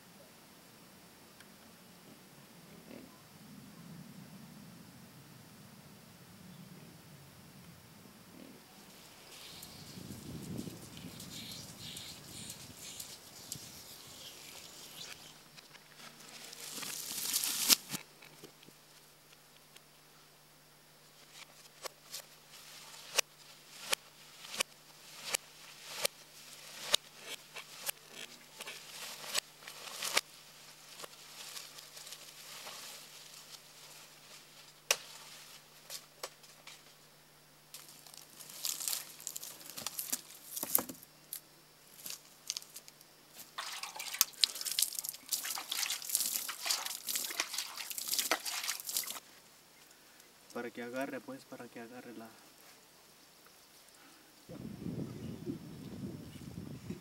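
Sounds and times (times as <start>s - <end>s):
crackling and rustling brush: 8.4s - 19.9s, 21.0s - 50.6s
machete chopping brush: 16.8s - 18.0s, 21.8s - 30.3s, 34.8s - 36.4s.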